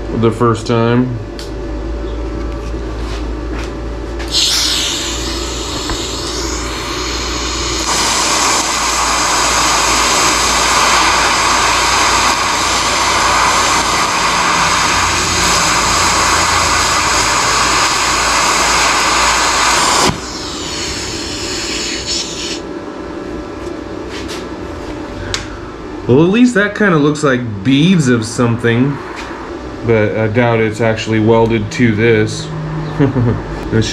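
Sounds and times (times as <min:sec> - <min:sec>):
welding arc hissing: 0:04.2 - 0:22.7.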